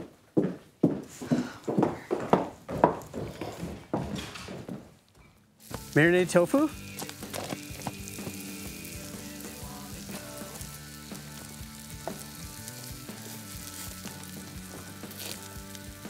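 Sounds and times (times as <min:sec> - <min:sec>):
tofu sizzling on grill: 0:05.6 - 0:16.0.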